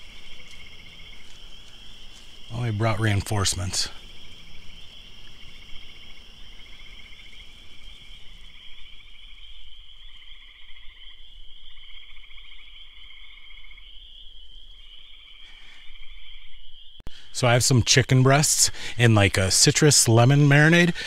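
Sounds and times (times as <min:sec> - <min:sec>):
frogs trilling: 0:00.0 - 0:21.0
lower pulsed frog trills: 0:03.9 - 0:17.2.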